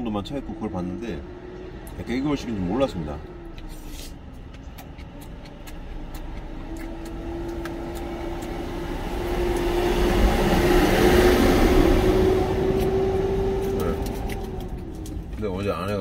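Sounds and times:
large vehicle engine passing: 0.0 - 15.4.

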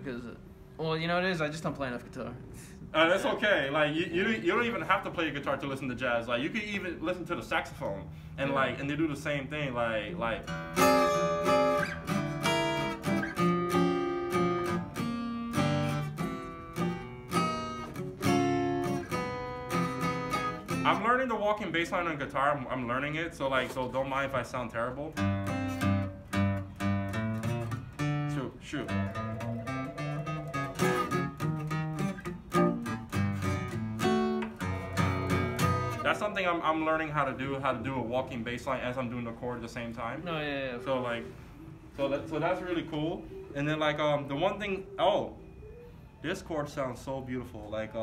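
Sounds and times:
acoustic guitar jazz chords: 2.7 - 45.0.

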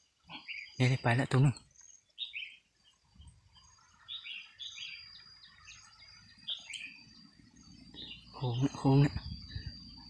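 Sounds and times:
bulbuls chirping: 0.0 - 10.0
faint steady high tone: 2.5 - 10.0.

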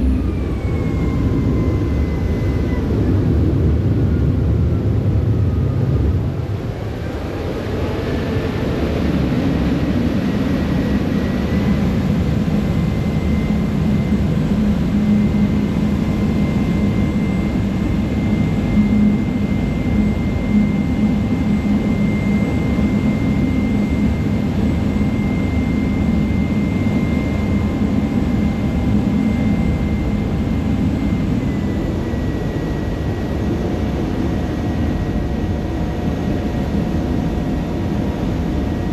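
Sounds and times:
ferry engines droning: 0.0 - 25.0
faint high whine: 0.0 - 38.9.

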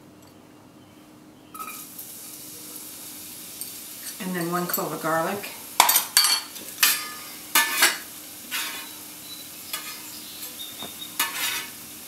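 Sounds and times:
onion and garlic sizzling in oil: 1.6 - 12.0
spoon scraping pot: 6.8 - 9.0, 9.7 - 11.8.

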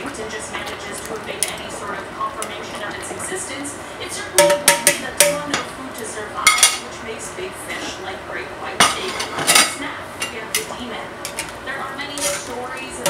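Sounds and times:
metal tongs clinking on pan: 0.6 - 2.9, 4.4 - 6.9, 8.8 - 13.0.

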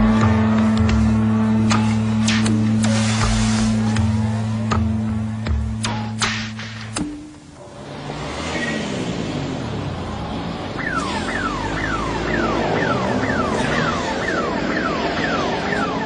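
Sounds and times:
street traffic: 0.0 - 16.0
electronic siren sweeping: 10.7 - 16.0.

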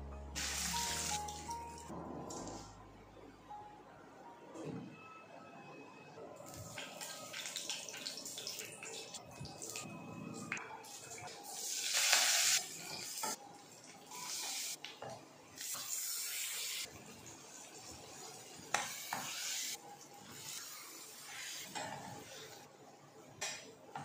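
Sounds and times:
onions sizzling in hot oil: 11.5 - 13.3, 14.1 - 14.8, 18.4 - 19.7.

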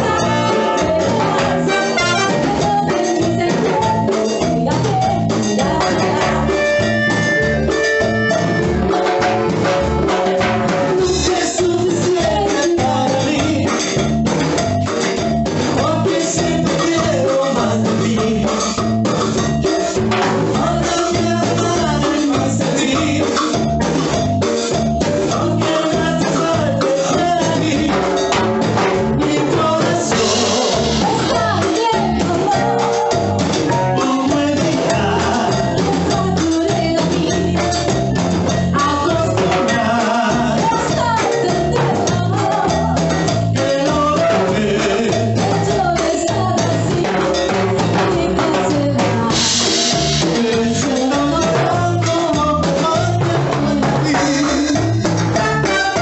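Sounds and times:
woman singing: 0.0 - 6.9, 10.9 - 13.7, 20.5 - 23.4, 29.2 - 38.0, 38.7 - 56.0
man singing: 0.0 - 9.2, 10.0 - 14.3, 15.6 - 23.9, 25.0 - 56.0
live band playing dance music: 0.0 - 56.0.

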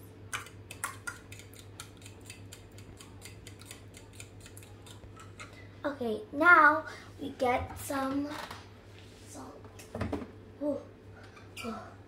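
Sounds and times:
fork beating eggs in a bowl: 0.3 - 5.6.

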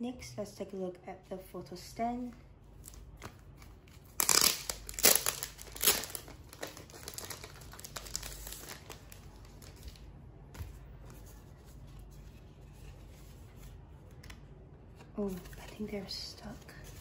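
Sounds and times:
plastic sleeve crinkling: 2.8 - 10.1.

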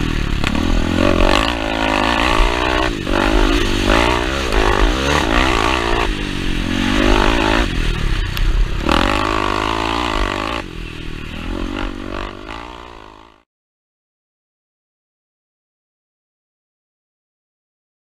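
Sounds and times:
motorcycle engine revving: 0.0 - 13.4.

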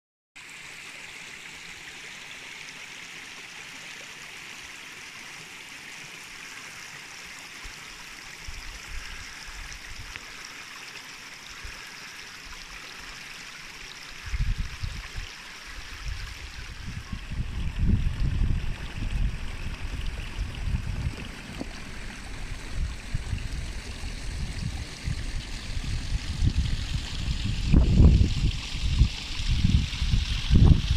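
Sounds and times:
stream running over stones: 0.4 - 30.9
wind buffeting on microphone: 14.3 - 15.2, 16.0 - 30.9.

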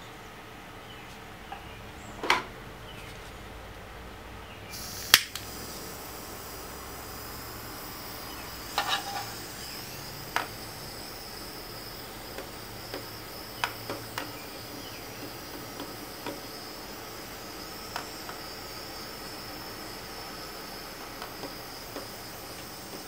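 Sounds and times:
torch igniter click: 4.7 - 6.5, 8.0 - 18.8, 20.6 - 23.0
torch flame hissing: 4.7 - 23.0.

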